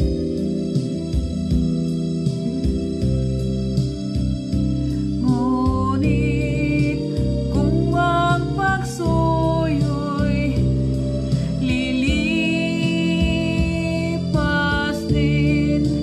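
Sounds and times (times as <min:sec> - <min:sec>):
instrumental backing music: 0:00.0 - 0:16.0
woman singing: 0:05.1 - 0:16.0.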